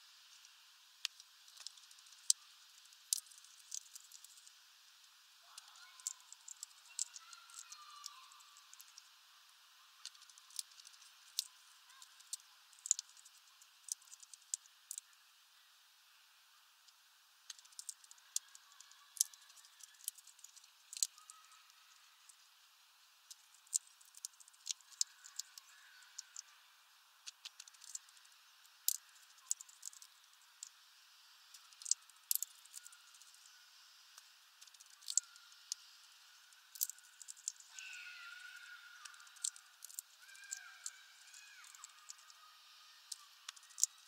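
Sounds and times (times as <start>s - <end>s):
bird cracking seeds: 1.0s - 4.5s, 5.5s - 9.0s, 10.0s - 15.1s, 17.5s - 21.6s, 23.3s - 26.5s, 27.2s - 28.2s, 28.8s - 30.7s, 31.5s - 33.4s, 34.6s - 35.8s, 36.7s - 37.9s, 38.5s - 42.4s, 43.1s - 44.0s.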